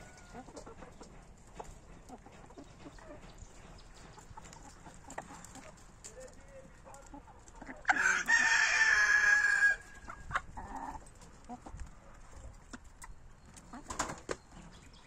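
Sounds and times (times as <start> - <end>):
chickens clucking: 0.0 - 15.0
rooster crowing: 7.9 - 9.9.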